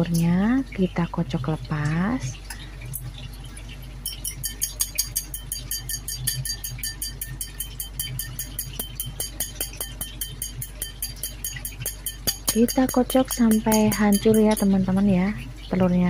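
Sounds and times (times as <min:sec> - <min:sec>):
chopsticks beating egg in bowl: 0:04.0 - 0:15.4.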